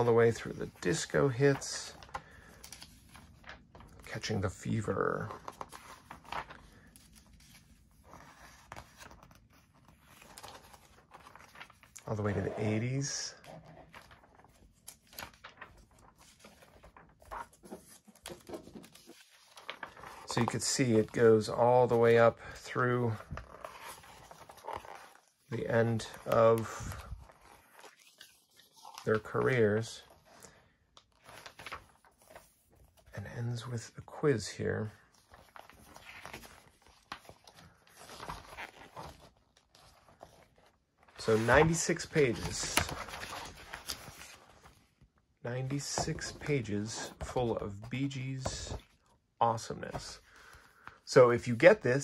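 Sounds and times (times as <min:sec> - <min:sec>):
magazine pages rustling: 0:00.0 - 0:52.0
pages flicking and slapping: 0:13.9 - 0:20.5, 0:41.2 - 0:44.7.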